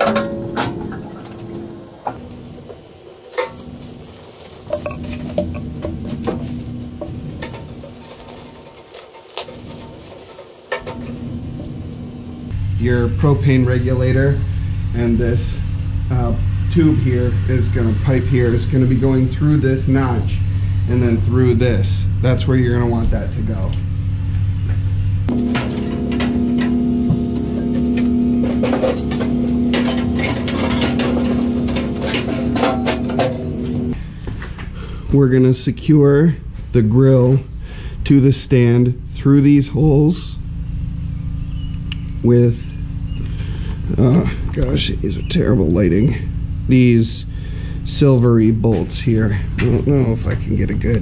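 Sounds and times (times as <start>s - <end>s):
steady low hum: 0.0s - 51.0s
bubble wrap rustling: 2.2s - 5.4s, 6.1s - 12.5s
metal parts clinking: 3.3s - 12.4s, 27.6s - 34.0s.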